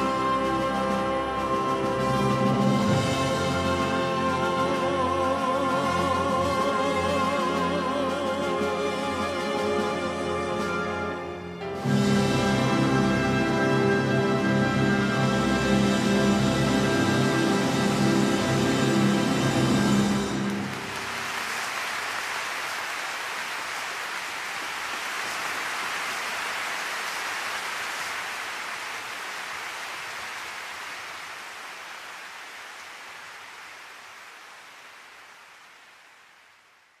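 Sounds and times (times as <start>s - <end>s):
music: 0.0s - 21.3s
rushing rain-like hiss: 15.0s - 37.0s.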